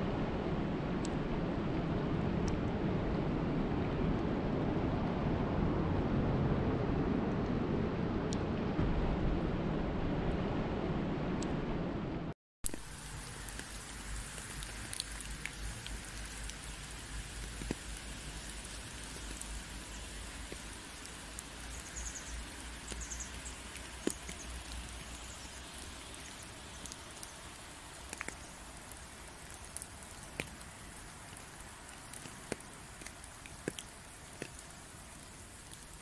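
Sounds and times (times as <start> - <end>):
faint low rumble: 0.0 - 27.3
rain on leaf-covered path: 12.6 - 36.0.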